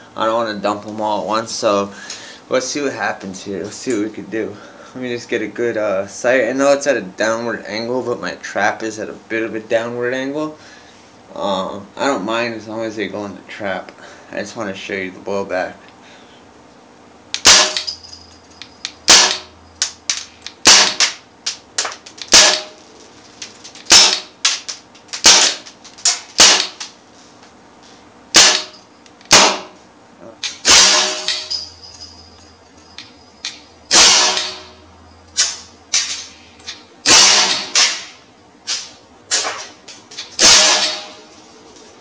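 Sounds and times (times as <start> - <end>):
air rifle shots popping: 17.4 - 17.9, 19.1 - 21.2, 21.8 - 22.8, 23.8 - 26.8, 28.4 - 28.7, 29.3 - 29.7, 33.9 - 34.6.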